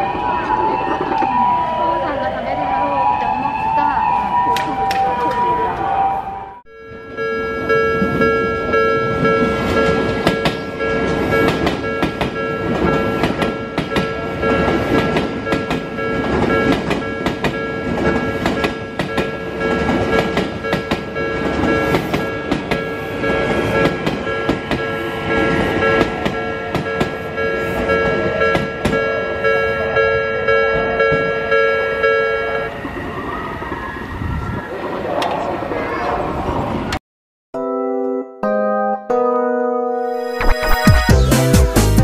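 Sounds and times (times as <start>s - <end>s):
level crossing warning bell: 0.0s - 32.8s
electric trains passing: 0.0s - 37.0s
train wheels clacking: 9.5s - 29.1s.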